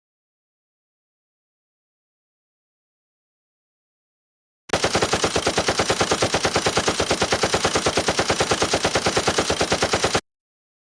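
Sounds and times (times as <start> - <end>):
machine gun automatic burst: 4.7 - 10.2.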